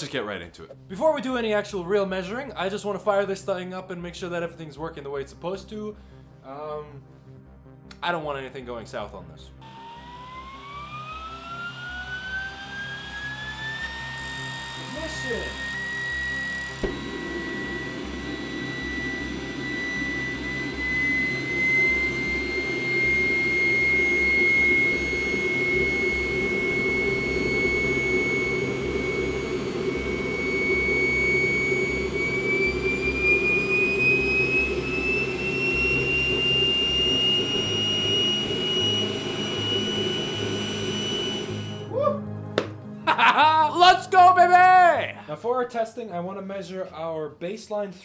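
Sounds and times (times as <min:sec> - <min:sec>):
electric blower whine: 0:09.5 - 0:42.0
propane burning roar: 0:09.6 - 0:41.9.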